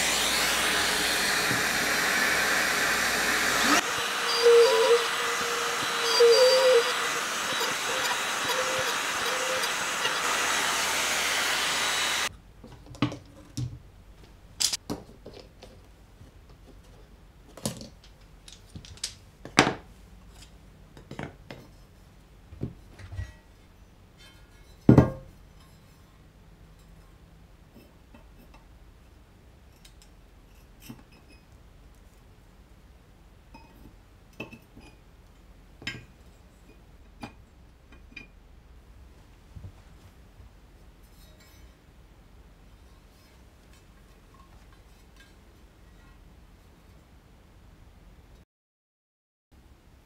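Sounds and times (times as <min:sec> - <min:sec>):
cordless trimmer whirring: 0:00.0 - 0:12.3.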